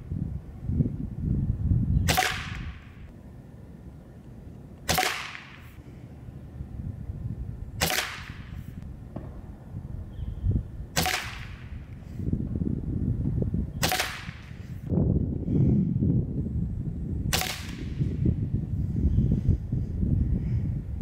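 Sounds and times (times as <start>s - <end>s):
wind rumble on microphone: 0.0s - 21.0s
air rifle shots: 2.0s - 3.1s, 4.8s - 5.8s, 7.8s - 9.5s, 10.9s - 12.1s, 13.8s - 14.9s, 17.3s - 18.2s.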